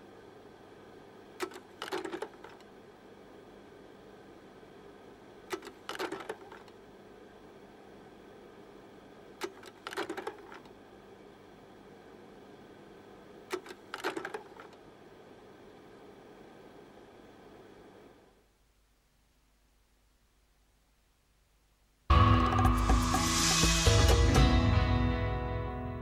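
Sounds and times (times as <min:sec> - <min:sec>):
faint steady hiss: 0:00.0 - 0:26.0
mechanical clatter: 0:01.4 - 0:02.6, 0:05.5 - 0:06.8, 0:13.5 - 0:14.8.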